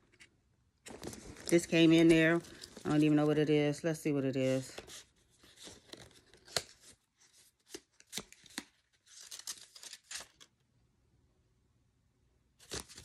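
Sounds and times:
paper leaflet crackling and rustling: 0.8s - 3.4s, 4.4s - 10.5s, 12.6s - 13.0s.

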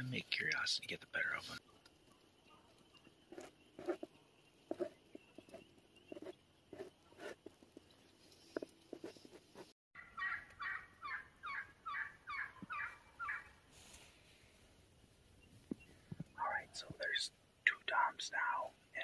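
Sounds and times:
turkey yelps: 10.0s - 13.5s.

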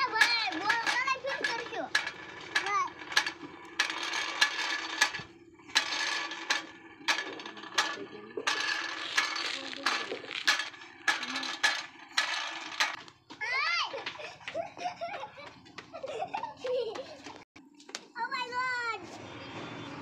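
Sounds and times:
toy rattling and scraping: 0.0s - 13.3s.

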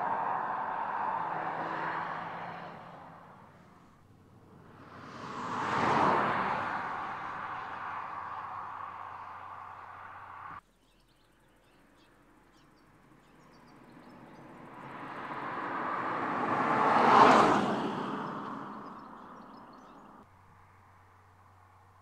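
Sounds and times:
car driving away: 0.0s - 10.6s, 13.3s - 20.2s
car driving past: 0.0s - 10.6s, 13.7s - 20.2s
birds chirping faintly: 18.0s - 20.2s.

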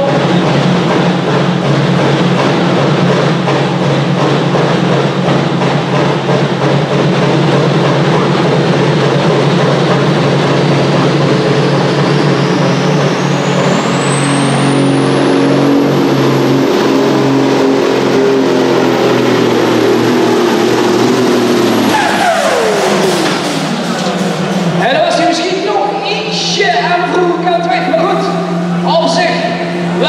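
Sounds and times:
pulling tractor engine with whine: 0.0s - 30.0s.

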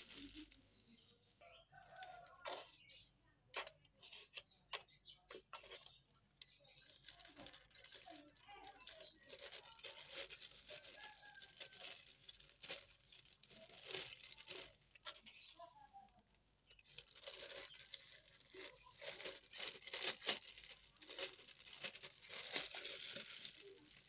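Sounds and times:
plastic bag crinkling: 0.0s - 0.8s, 5.6s - 24.0s.

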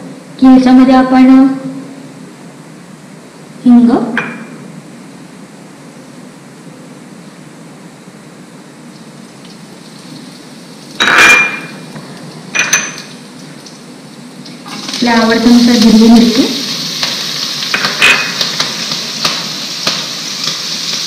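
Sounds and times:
hot oil hissing in frying pan: 8.8s - 21.0s
glass bowls clinking: 11.0s - 11.8s, 12.5s - 13.2s, 17.7s - 18.4s.

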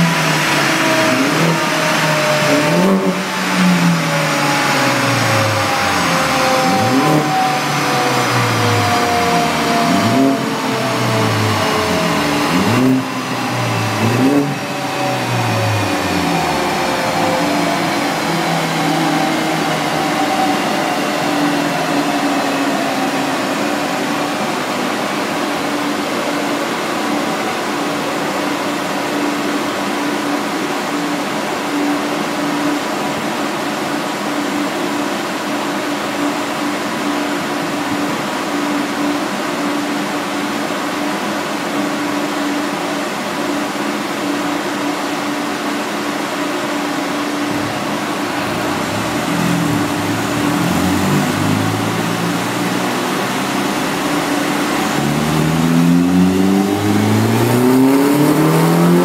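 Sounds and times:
whine falling in pitch: 0.0s - 26.0s, 47.1s - 59.0s
mechanical whir with rushing air: 0.0s - 27.5s, 47.0s - 59.0s
car engine: 0.0s - 30.4s, 45.3s - 59.0s.

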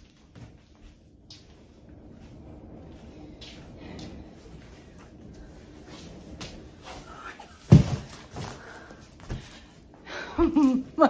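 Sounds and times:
box scraping across wooden floor: 2.0s - 9.5s
loud thump: 7.7s - 8.2s.

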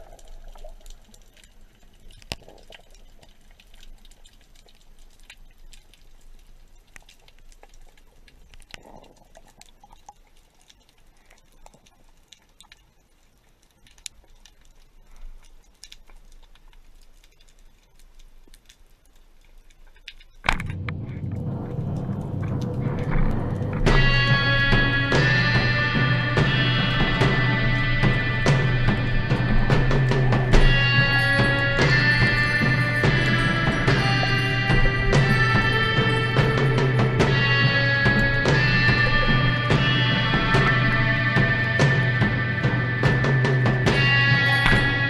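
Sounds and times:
soft watery hiss: 0.0s - 20.5s
underwater clicks and crackles: 0.0s - 45.0s
music: 20.6s - 45.0s.

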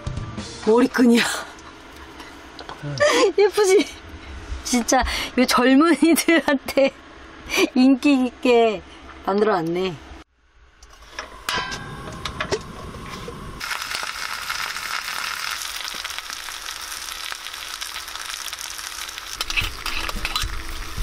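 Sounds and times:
steady sizzle: 13.5s - 21.0s.

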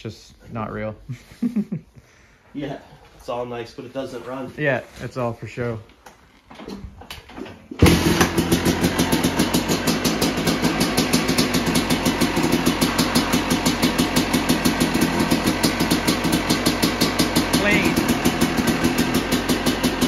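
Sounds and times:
two-stroke engine starting and idling: 7.3s - 20.0s.

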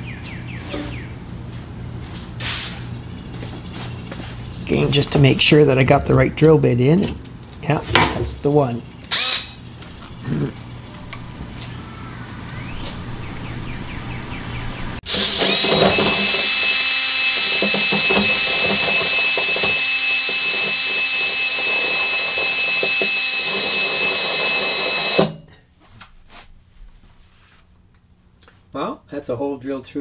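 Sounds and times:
cordless drill whining: 15.0s - 25.4s.

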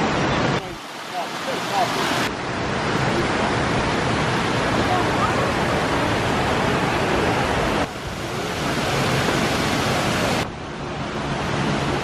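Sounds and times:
waterfall splashing: 0.0s - 10.5s.

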